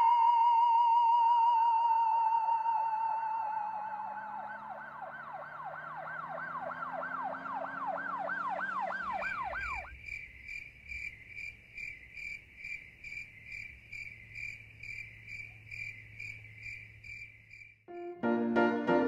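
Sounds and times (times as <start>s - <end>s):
cricket chirping: 9.2s - 18.2s.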